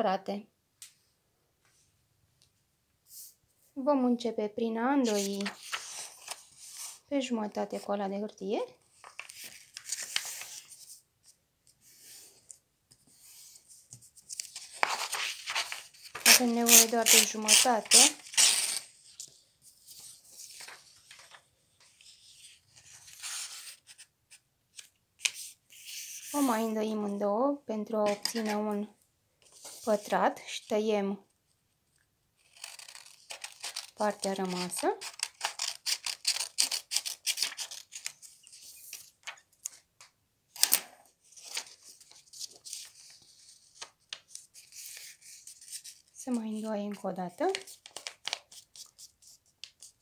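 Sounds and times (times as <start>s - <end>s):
paper rustling and creasing: 5.0s - 7.0s, 8.9s - 24.1s, 32.4s - 39.9s, 40.6s - 46.2s
hands creasing paper: 13.8s - 19.3s, 32.4s - 39.8s
scissors cutting paper: 16.2s - 18.9s, 32.4s - 38.1s.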